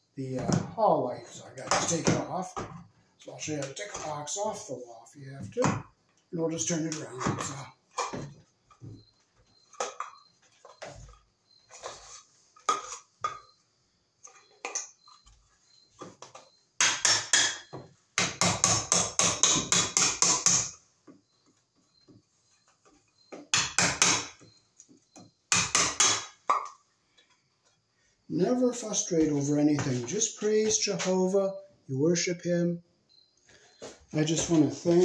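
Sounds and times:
hammer knocking and prying: 1.6s - 2.8s, 16.0s - 20.8s, 23.3s - 24.5s, 25.2s - 26.7s.

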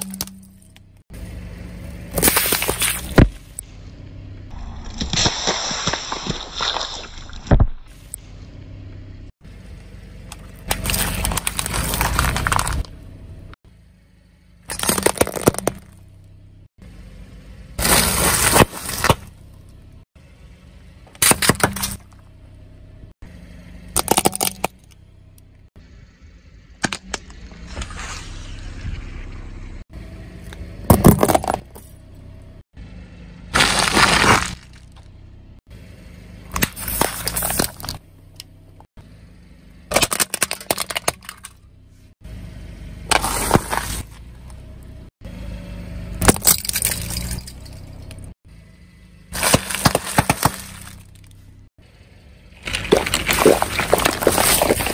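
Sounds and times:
noodle packets crunching: 10.7s - 12.9s, 33.6s - 34.8s, 49.4s - 51.1s, 52.7s - 54.9s.

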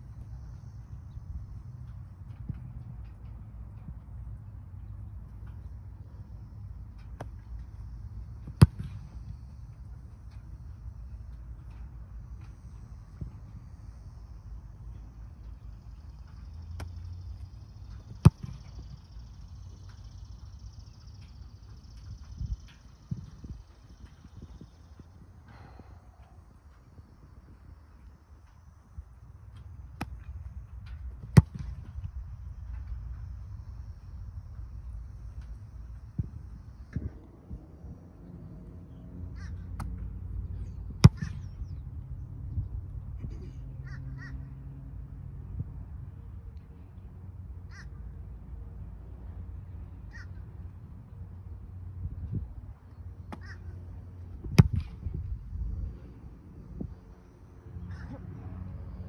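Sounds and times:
foot kicking a football: 8.4s - 9.4s, 18.1s - 18.9s, 31.2s - 32.0s, 40.9s - 41.8s, 53.3s - 53.7s, 54.4s - 55.3s
crows cawing: 43.8s - 44.4s, 47.7s - 48.0s, 53.4s - 53.7s.

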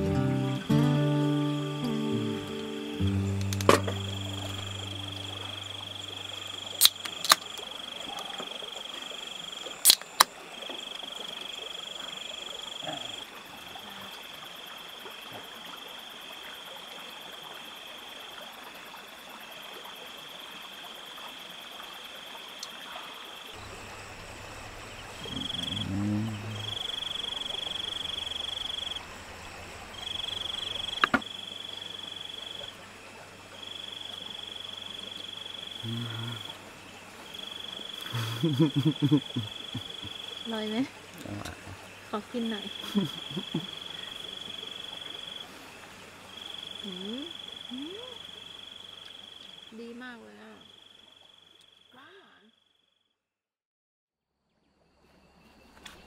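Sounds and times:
low hum: 0.0s - 7.6s, 23.6s - 31.7s, 38.1s - 40.2s
sharp clicks: 3.4s - 4.0s, 6.8s - 8.3s, 9.9s - 10.3s.

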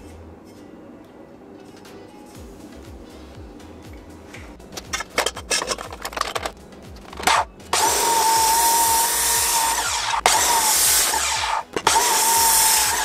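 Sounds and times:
handling clicks and knocks: 4.4s - 7.8s
chop saw grinding through steel: 7.1s - 13.0s.

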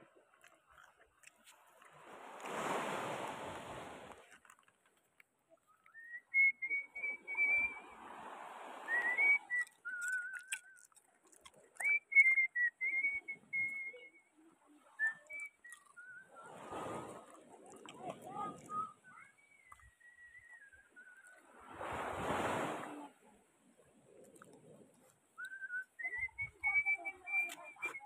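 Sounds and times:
person whistling a tune: 5.8s - 7.8s, 8.9s - 10.9s, 11.8s - 14.3s, 15.0s - 16.6s, 18.3s - 21.4s, 25.4s - 28.0s.

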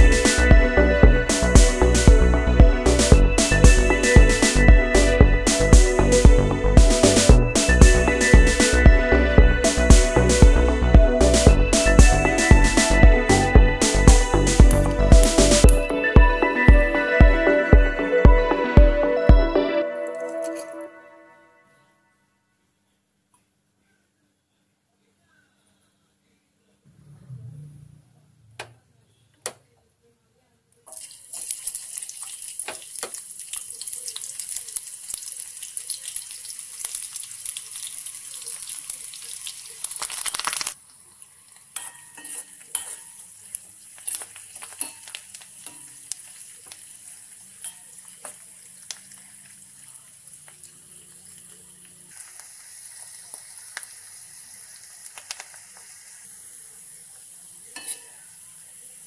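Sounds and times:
stirring clicks: 30.9s - 40.8s, 41.6s - 46.8s
crackles and clicks: 30.9s - 56.2s
onion sizzling in hot oil: 30.9s - 59.0s.

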